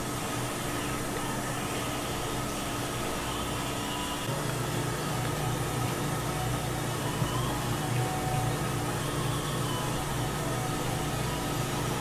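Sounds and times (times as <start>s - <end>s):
kitchen machinery hum: 0.0s - 12.0s
faint steady tones: 3.2s - 12.0s.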